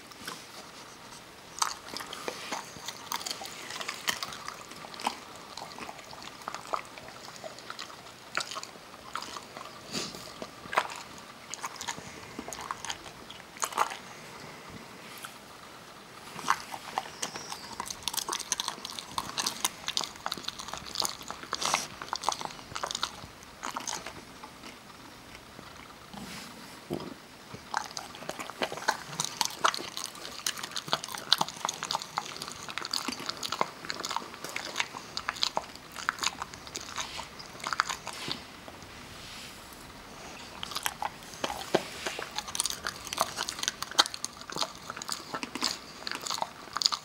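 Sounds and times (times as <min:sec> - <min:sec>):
dog crunching nuts: 0:01.5 - 0:14.2, 0:16.3 - 0:24.9, 0:27.6 - 0:38.4, 0:40.1 - 0:47.0.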